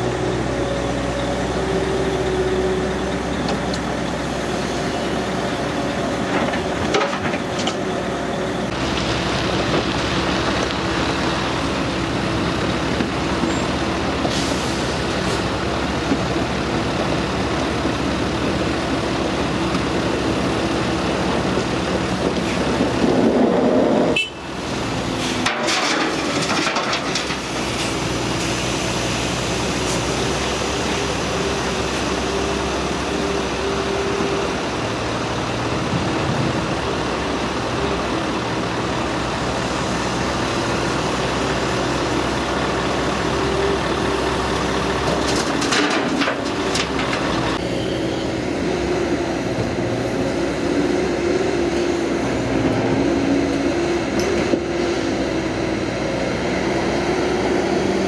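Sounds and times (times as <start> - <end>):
excavator engine and hydraulics: 0.0 - 58.0
truck engine running: 0.0 - 58.0
dirt dropping into steel truck bed: 25.3 - 27.9.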